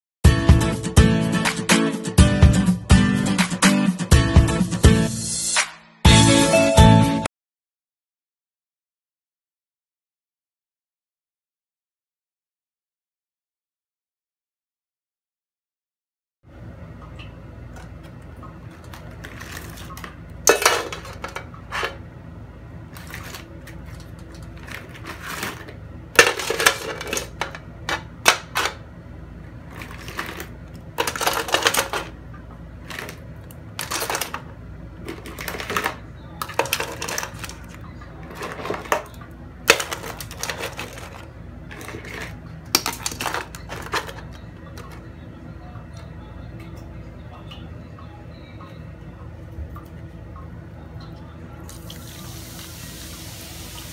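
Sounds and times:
crab shells clattering in pot: 18.7s - 22.0s, 23.0s - 28.8s, 29.7s - 32.2s, 32.8s - 45.0s.

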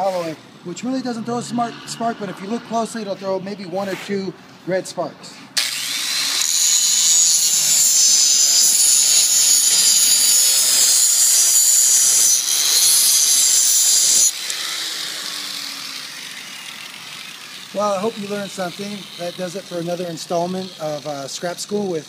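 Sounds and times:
grinder motor spinning down: 5.6s - 21.4s
angle grinder grinding metal: 5.6s - 22.0s.

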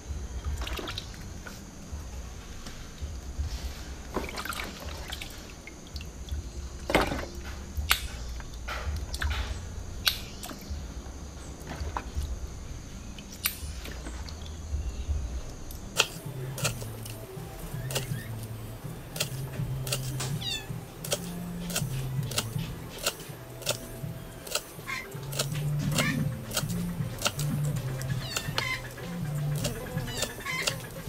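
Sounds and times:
water splashing in a basin: 0.3s - 1.8s, 3.5s - 10.8s
sharp clicks: 7.8s - 9.4s, 10.0s - 10.7s, 15.7s - 31.0s.

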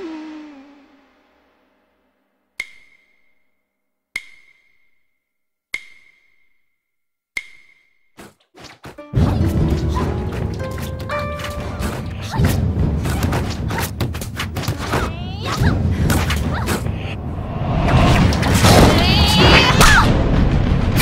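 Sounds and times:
soundtrack music with impacts: 9.0s - 21.0s.

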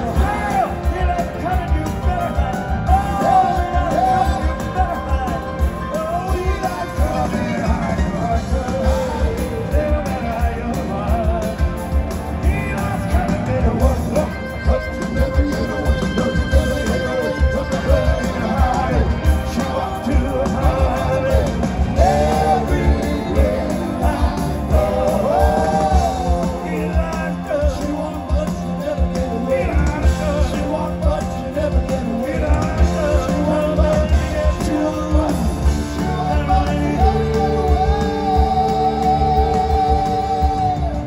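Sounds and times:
drum beat: 0.0s - 41.0s
electric bass: 0.0s - 41.0s
lead singer: 0.0s - 41.0s
second voice singing: 12.4s - 41.0s.

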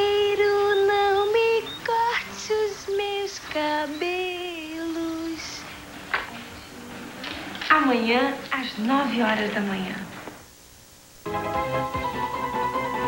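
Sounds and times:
woman singing long notes: 0.0s - 5.7s.

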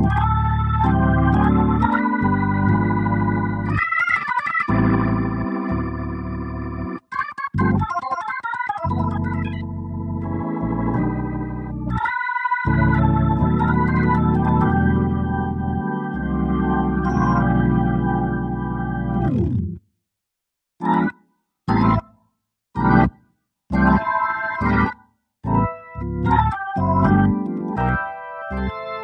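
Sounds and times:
organ chords: 0.0s - 19.8s, 20.8s - 22.2s, 22.8s - 29.0s
bass line: 12.7s - 19.8s, 25.5s - 28.0s.

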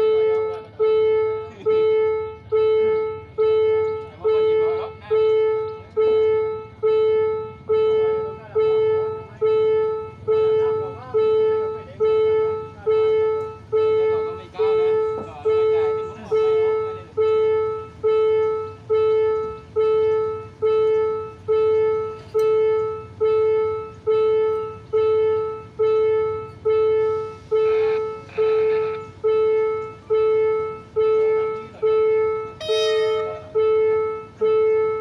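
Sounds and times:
level crossing bell ringing: 0.0s - 35.0s
short horn toot: 31.0s - 35.0s.

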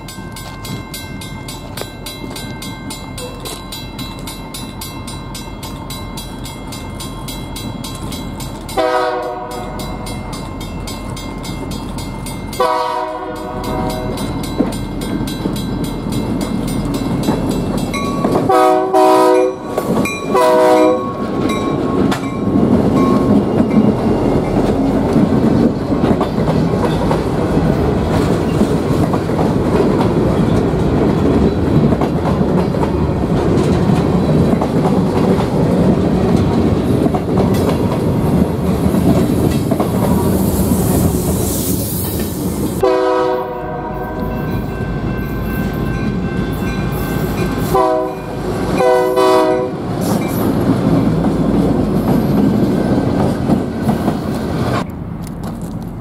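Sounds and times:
train wheels rumbling on rails: 0.0s - 56.0s
locomotive air horn blasts: 8.8s - 9.8s, 12.6s - 14.2s, 18.4s - 19.7s, 20.3s - 21.2s, 42.8s - 44.4s, 47.7s - 49.8s.

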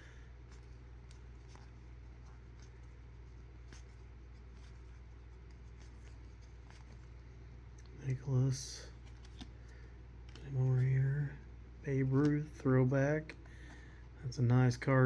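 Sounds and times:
steady low hum: 0.0s - 15.0s
trading cards clicking and rustling: 0.4s - 7.1s, 8.9s - 11.1s, 11.9s - 12.6s.

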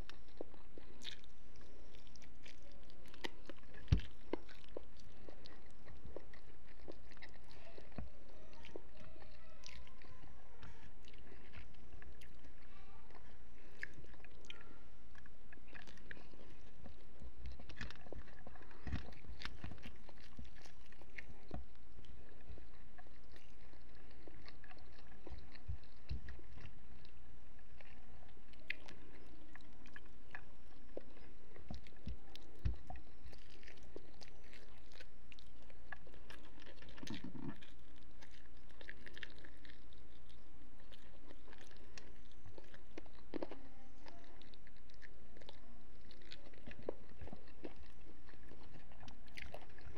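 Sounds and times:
person chewing food: 0.0s - 49.9s
wet crunches and mouth sounds: 0.0s - 49.9s.

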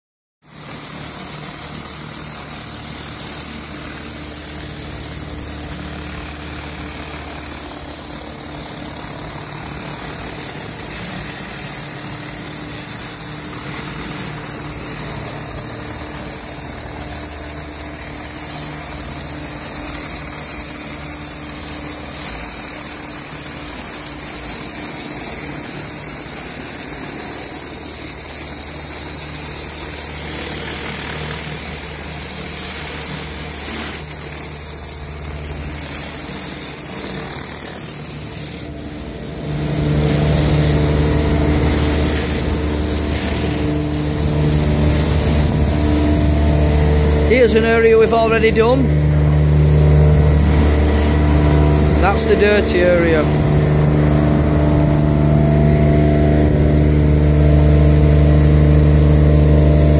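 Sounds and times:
pressure washer spraying hiss: 0.5s - 59.9s
engine hum: 27.1s - 59.9s.

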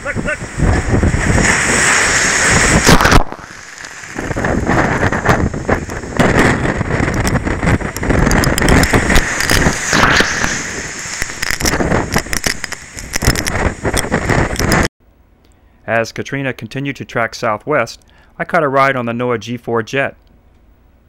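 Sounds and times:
waves crashing over seawall: 0.0s - 14.9s
wind blowing across microphone: 0.0s - 14.9s.

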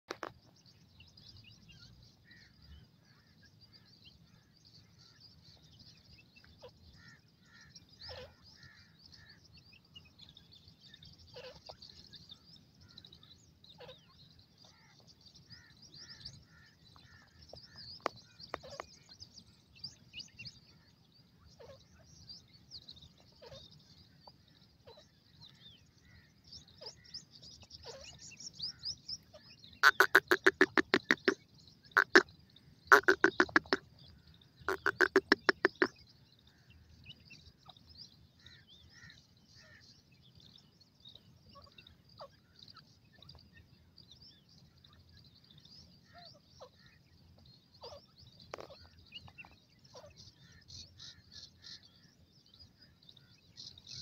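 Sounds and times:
chicks twittering peeps: 27.6s - 32.3s, 32.9s - 33.9s, 34.6s - 36.1s.

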